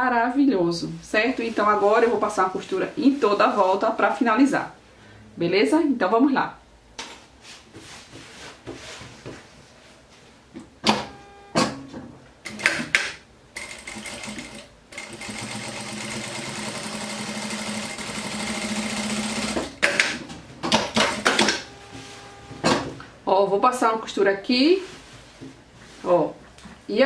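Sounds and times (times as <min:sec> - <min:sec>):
fabric rustling: 0:01.4 - 0:04.0, 0:07.2 - 0:10.5, 0:24.4 - 0:26.9
sewing machine running: 0:13.6 - 0:22.6.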